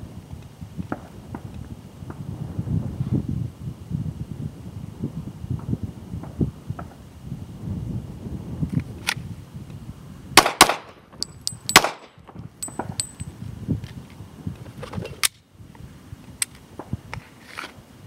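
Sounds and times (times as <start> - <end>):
pistol shots: 10.4 - 10.9, 11.7 - 12.1
light metallic clinks: 11.2 - 11.8, 12.6 - 13.3.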